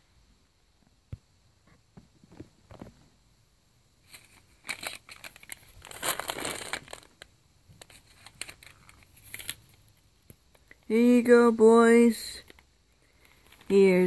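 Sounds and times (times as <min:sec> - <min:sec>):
gift wrap crinkling: 0:04.1 - 0:09.6.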